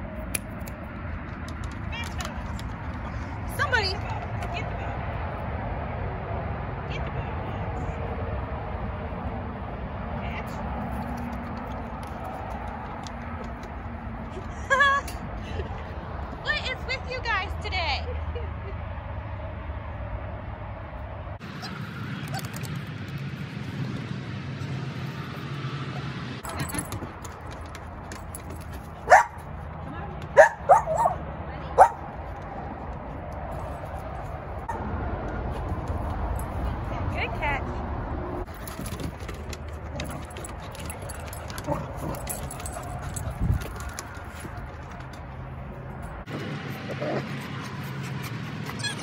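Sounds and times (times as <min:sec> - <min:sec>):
dog tags jingling: 0:26.4 - 0:29.4, 0:38.5 - 0:45.1
dogs scrambling on wooden deck: 0:26.4 - 0:30.4, 0:38.5 - 0:45.9.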